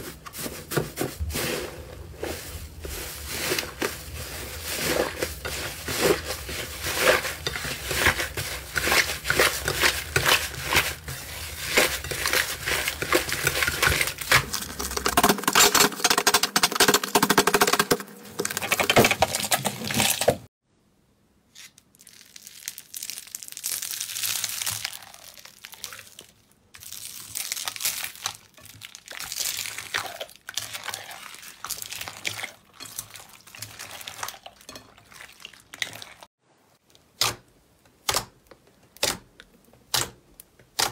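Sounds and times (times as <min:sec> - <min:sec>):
slime crackling and popping: 0:21.6 - 0:30.6.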